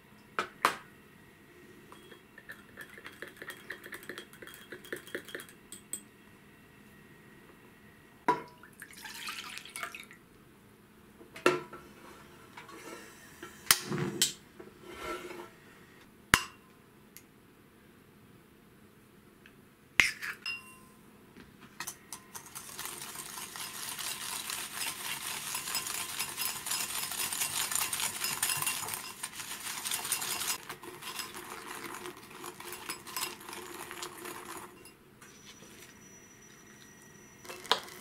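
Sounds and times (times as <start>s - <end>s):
whisk scraping a glass bowl: 2.0s - 5.5s, 22.4s - 38.0s.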